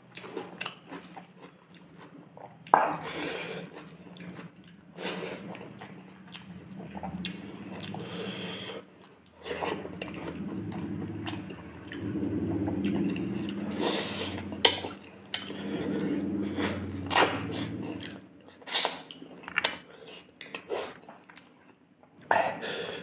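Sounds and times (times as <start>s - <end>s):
wet chewing and lip smacks: 0.1s - 8.2s.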